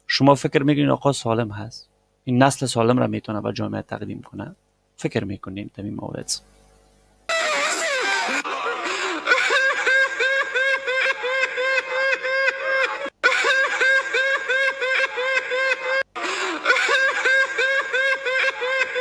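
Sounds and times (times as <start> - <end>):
high-pitched rapid laughter: 7.3 - 19.0.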